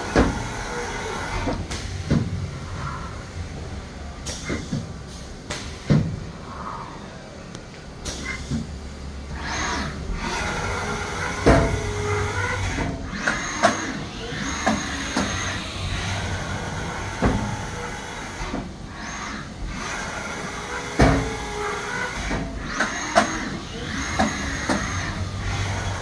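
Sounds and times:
low machine hum: 0:00.0 - 0:26.0
lathe axes whining: 0:09.3 - 0:26.0.

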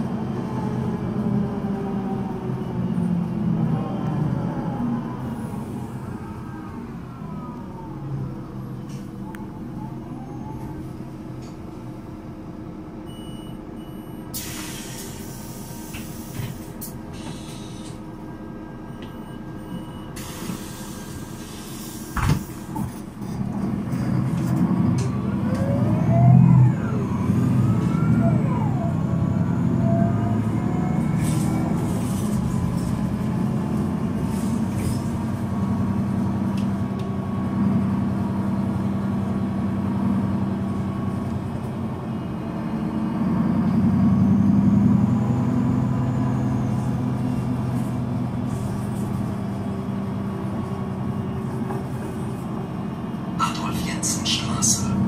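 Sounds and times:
diesel bus engine idling: 0:00.0 - 0:55.0
air hissing: 0:20.2 - 0:22.7.

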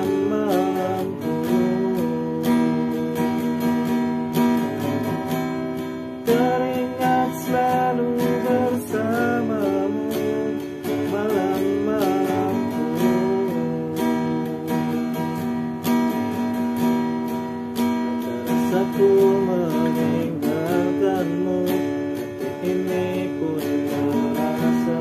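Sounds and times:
man humming a melody: 0:00.0 - 0:03.4, 0:06.3 - 0:15.3, 0:18.7 - 0:25.0
acoustic guitar strumming: 0:00.0 - 0:25.0.

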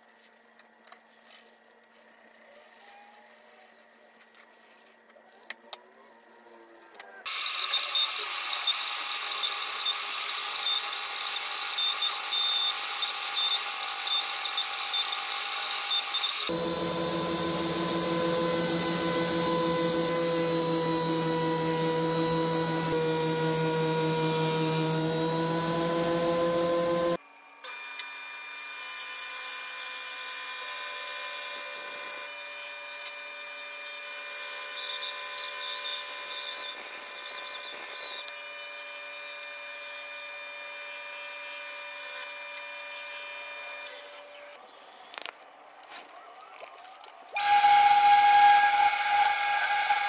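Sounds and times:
band saw cutting wood: 0:16.2 - 0:27.2, 0:47.4 - 0:50.0
thickness planer running: 0:16.4 - 0:27.2, 0:47.4 - 0:50.0.

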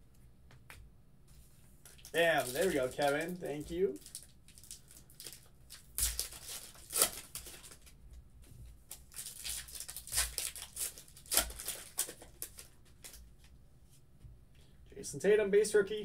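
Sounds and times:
foil pack tearing and crinkling: 0:02.0 - 0:03.4, 0:04.0 - 0:07.9, 0:08.9 - 0:13.2.

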